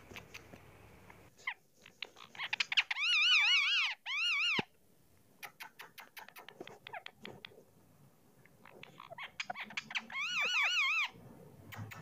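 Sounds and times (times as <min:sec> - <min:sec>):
parakeet calling: 0:01.4 - 0:04.6, 0:08.6 - 0:11.2.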